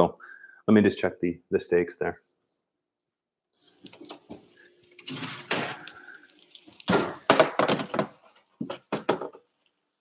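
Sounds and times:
food sizzling: 3.6s - 10.0s
pans clattering: 6.8s - 9.5s.

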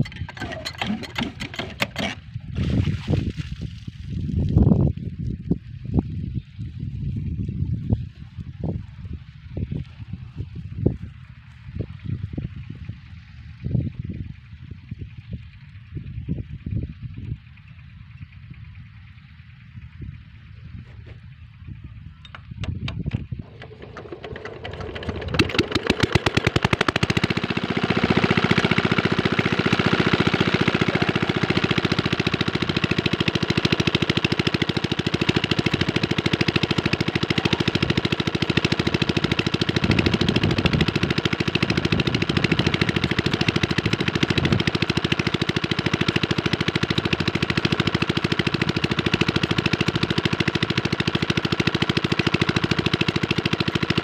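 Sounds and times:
diesel engine starting and running: 0.0s - 2.7s, 22.2s - 54.0s.

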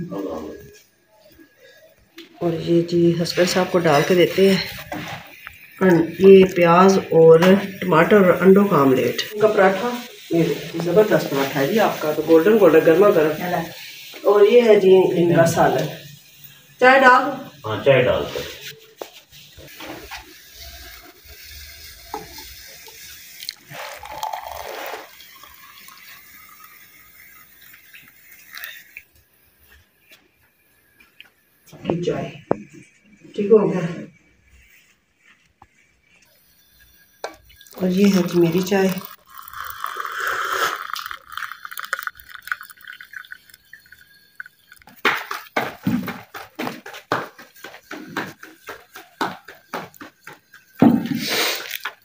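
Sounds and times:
tea pouring into a mug: 0.6s - 14.4s, 19.5s - 31.4s, 36.2s - 46.3s, 47.5s - 52.0s.

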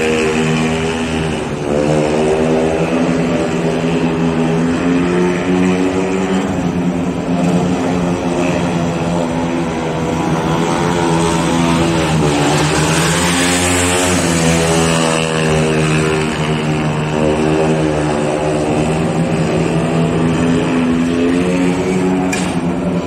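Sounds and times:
motorcycle engine running hard: 0.0s - 23.0s.

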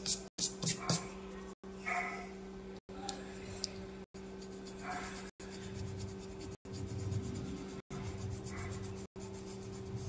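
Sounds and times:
low electrical hum: 0.0s - 10.0s
colored pencil scratching on paper: 4.3s - 10.0s.

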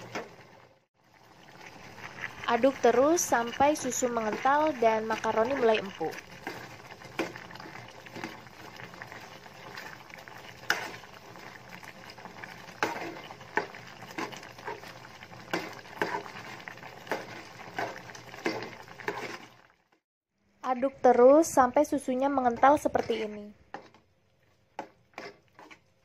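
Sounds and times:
metal spoon scraping a pot: 12.3s - 19.7s, 24.8s - 26.0s.

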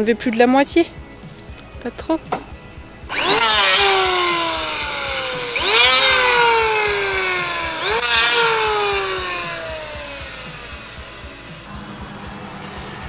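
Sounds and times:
electric hand planer whining: 3.1s - 11.7s.

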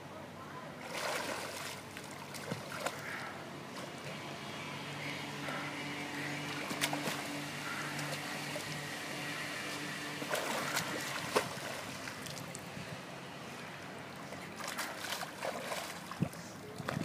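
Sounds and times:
pool water splashing: 0.6s - 17.0s.

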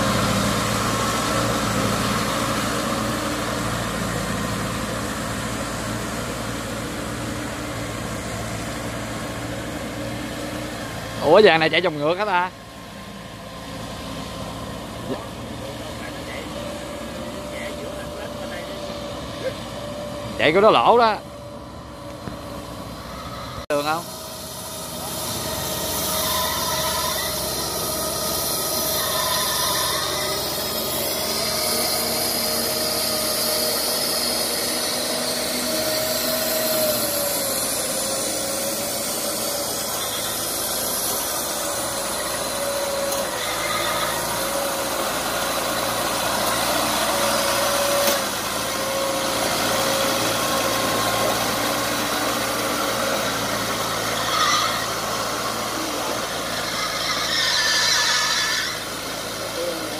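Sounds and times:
small diesel tractor engine: 0.0s - 59.9s
high wavering squeal: 23.0s - 59.9s.

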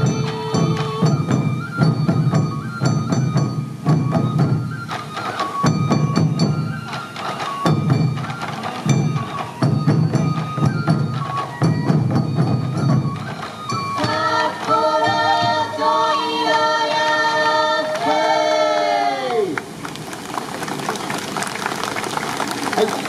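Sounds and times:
barrel drums beaten rhythmically: 0.0s - 18.4s
high melody of held notes: 0.0s - 19.1s.

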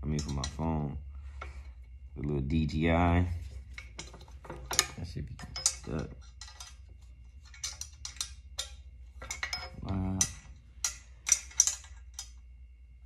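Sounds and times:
metal pins and clips clicking: 0.0s - 0.6s, 3.7s - 12.4s.

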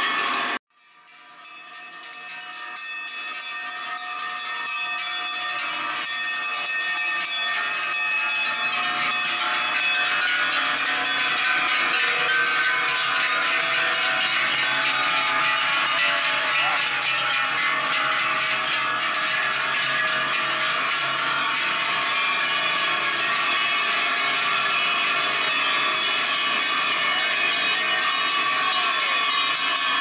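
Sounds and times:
cowbells clanging: 0.0s - 30.0s.

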